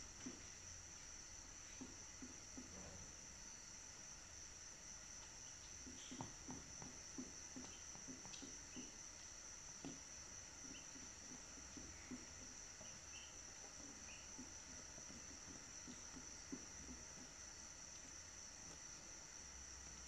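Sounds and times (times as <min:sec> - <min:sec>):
chicks cheeping: 0:07.6 - 0:09.0, 0:10.6 - 0:15.6.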